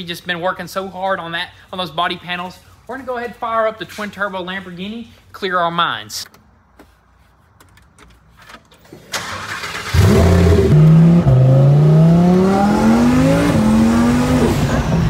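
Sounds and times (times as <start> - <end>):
car engine accelerating hard: 9.2 - 15.0.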